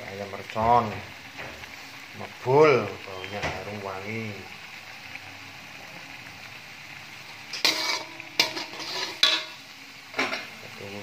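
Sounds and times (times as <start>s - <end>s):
paste sizzling: 0.0s - 11.0s
metal spatula scraping a wok: 7.5s - 9.6s.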